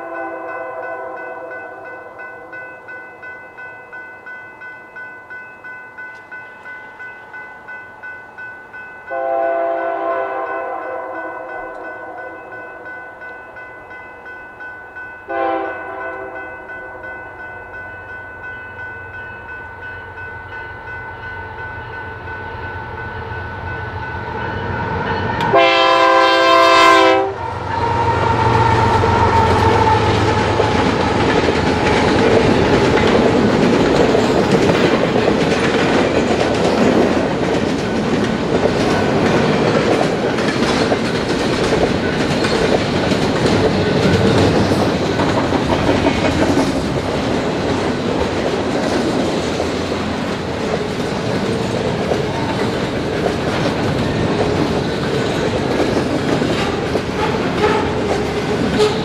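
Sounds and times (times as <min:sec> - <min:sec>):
locomotive horn blasts: 0:00.0 - 0:01.8, 0:09.1 - 0:12.4, 0:15.3 - 0:17.0, 0:25.4 - 0:30.9
crossing bells ringing: 0:00.0 - 0:59.0
locomotive rumble: 0:27.3 - 0:59.0.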